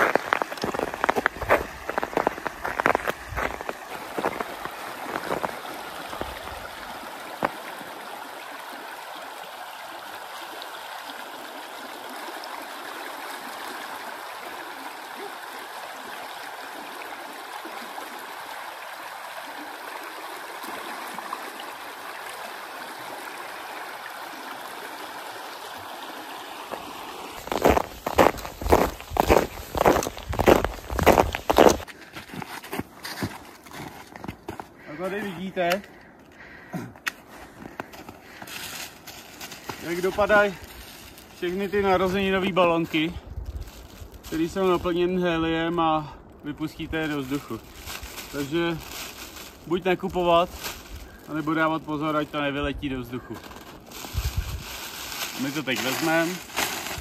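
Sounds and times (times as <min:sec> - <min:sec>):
footsteps crunching in snow: 0:00.0 - 0:07.6, 0:26.7 - 0:35.3, 0:37.4 - 0:42.2, 0:43.4 - 0:44.8, 0:47.1 - 0:51.6, 0:53.2 - 0:57.0
creek water rushing: 0:00.0 - 0:31.9, 0:53.5 - 0:57.0.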